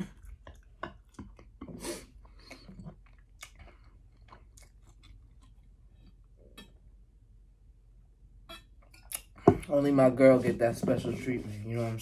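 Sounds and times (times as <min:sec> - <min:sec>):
man chewing with wet clicks: 0:00.0 - 0:06.9.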